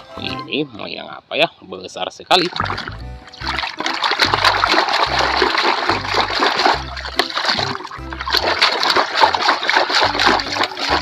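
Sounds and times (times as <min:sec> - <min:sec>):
background music with bass line: 0:00.0 - 0:00.8, 0:02.4 - 0:11.0
water splashing and sloshing: 0:02.3 - 0:11.0
toy truck scrubbed in water: 0:03.7 - 0:11.0.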